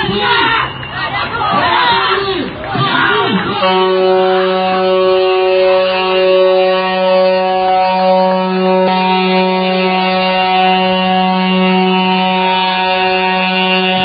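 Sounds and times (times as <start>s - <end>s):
droning guitar-like note: 3.4s - 14.0s.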